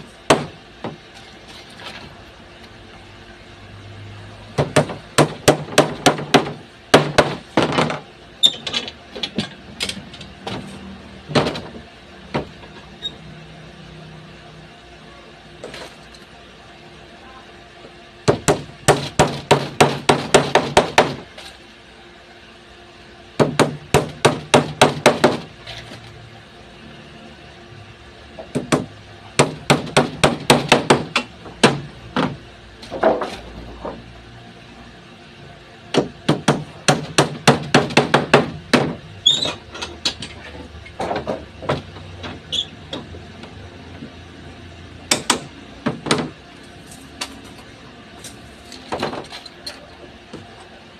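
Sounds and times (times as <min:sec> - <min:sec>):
hammer striking wood: 0:00.3 - 0:01.0, 0:04.6 - 0:08.0, 0:18.3 - 0:21.2, 0:23.4 - 0:25.5, 0:28.5 - 0:32.4, 0:35.9 - 0:39.0, 0:45.1 - 0:46.4.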